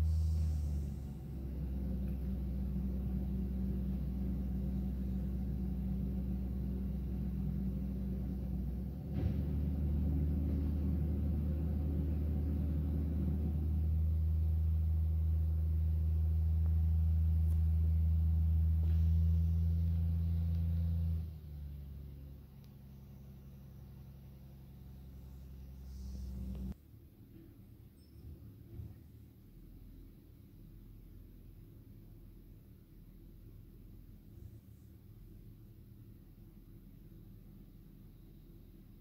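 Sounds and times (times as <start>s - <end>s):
truck engine droning: 0.0s - 26.8s.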